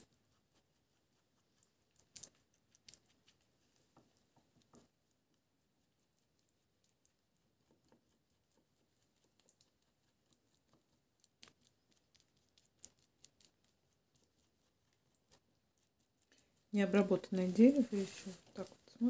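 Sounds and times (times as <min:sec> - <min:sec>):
small clicks and taps: 0:03.9 - 0:05.0.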